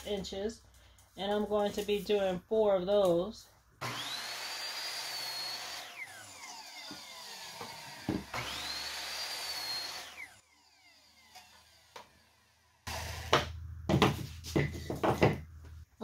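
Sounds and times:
miter saw motor whine: 0:03.8 - 0:13.3.

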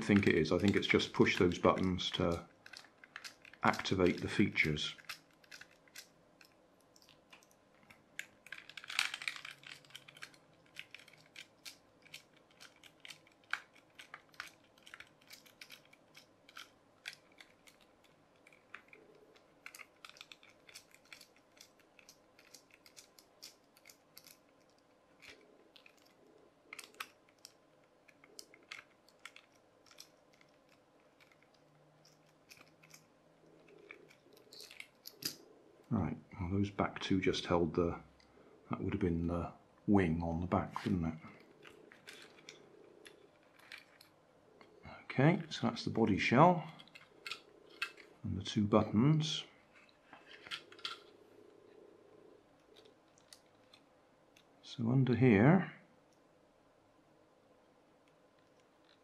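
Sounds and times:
screwdriver clicks and scratches: 0:00.0 - 0:35.4
plastic handling noise: 0:00.0 - 0:36.0, 0:40.6 - 0:49.0, 0:49.6 - 0:51.9, 0:52.6 - 0:54.5.

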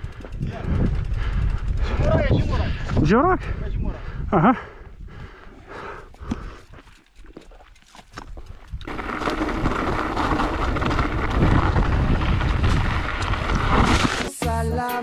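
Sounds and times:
bike rattling over stones: 0:00.0 - 0:03.1, 0:06.2 - 0:14.4
wind rumbling on microphone: 0:00.0 - 0:14.3.

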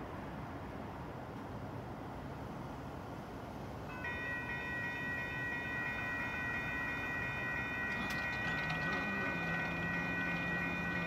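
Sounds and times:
railroad crossing bell ringing: 0:03.9 - 0:11.0.

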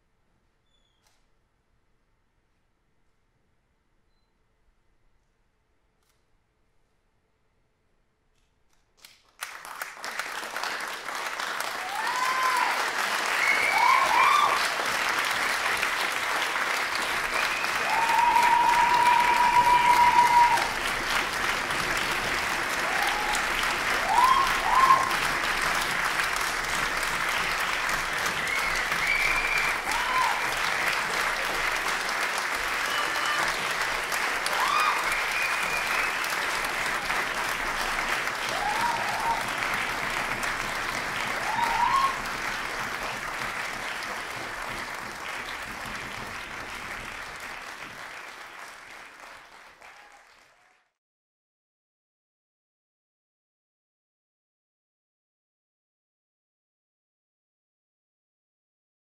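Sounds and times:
audience applauding: 0:09.3 - 0:51.0.

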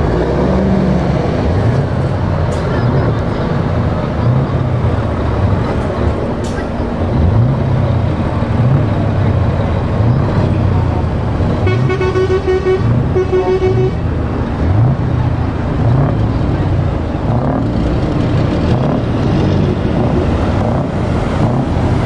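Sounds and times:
lorry diesel engines pulling away: 0:00.0 - 0:22.0
truck horn blasts: 0:11.6 - 0:14.1.

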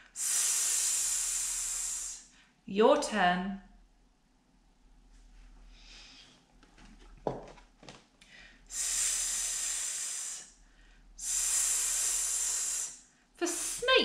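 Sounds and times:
woman making hissing s sound: 0:00.0 - 0:02.3, 0:08.7 - 0:10.6, 0:11.2 - 0:13.9.

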